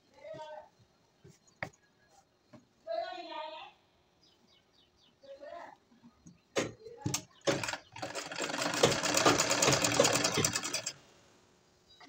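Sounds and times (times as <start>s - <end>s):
sewing machine stitching: 7.0s - 11.0s
sewing machine clicks: 7.1s - 11.0s.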